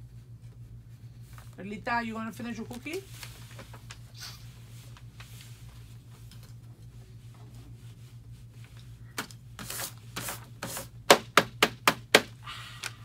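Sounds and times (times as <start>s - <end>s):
steady low hum: 0.0s - 13.0s
faint rustles and clicks: 2.5s - 9.1s.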